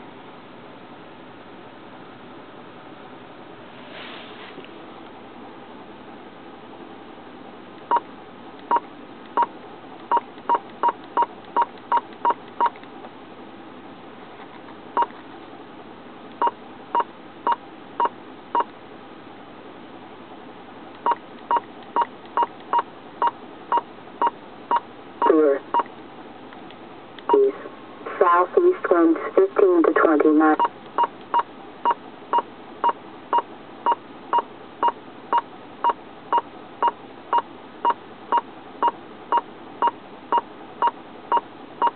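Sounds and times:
radio hiss: 27.3 - 30.6
radio audio burst: 27.3 - 30.7.

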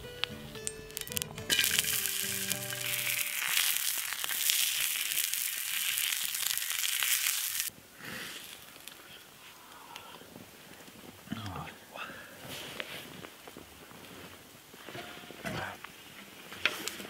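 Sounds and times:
music: 0.0 - 3.4
sausages sizzling in a pan: 0.2 - 9.0.

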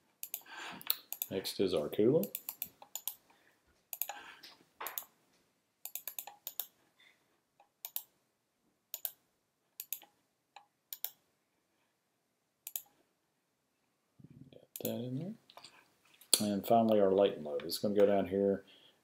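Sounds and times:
computer mouse clicks: 0.2 - 1.3, 2.2 - 3.3, 3.9 - 4.2, 4.9 - 5.1, 5.8 - 6.8, 7.6 - 8.1, 8.9 - 9.2, 9.8 - 11.2, 12.6 - 13.0.

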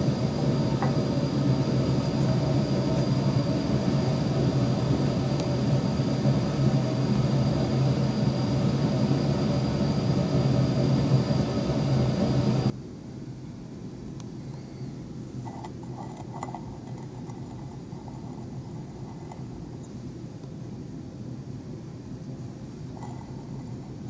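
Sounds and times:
thin high whine: 0.0 - 12.8, 22.7 - 24.0
low mechanical hum: 0.0 - 24.0.

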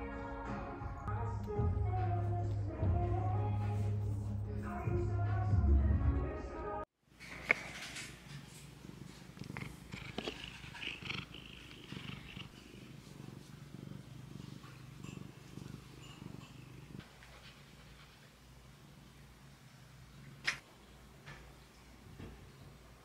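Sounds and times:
cat purring: 7.4 - 20.6.

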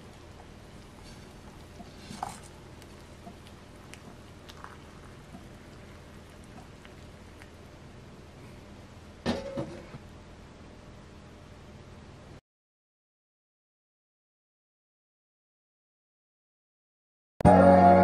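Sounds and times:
hot water pouring into cup: 0.0 - 7.7.

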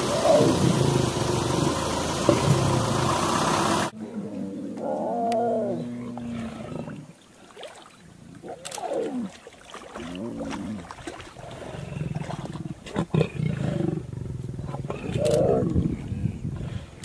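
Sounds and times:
drawn-out pitch-bending growl: 0.0 - 6.6
lions growling: 0.0 - 7.1, 11.4 - 16.8.

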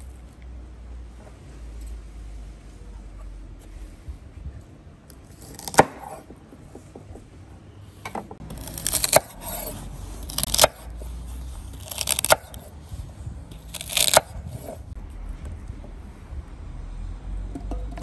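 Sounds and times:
knife slicing celery: 5.2 - 6.2, 8.5 - 12.8, 13.6 - 14.8.

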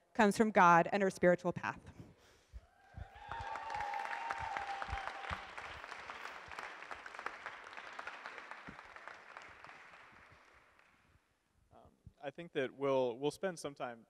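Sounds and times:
audience applauding: 3.0 - 11.0.

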